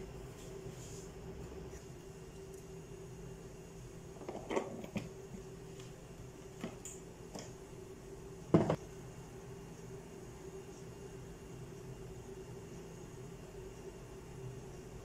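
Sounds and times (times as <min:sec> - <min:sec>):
steady low hum: 0:00.0 - 0:15.0
light knocks on a cooker: 0:08.5 - 0:08.8.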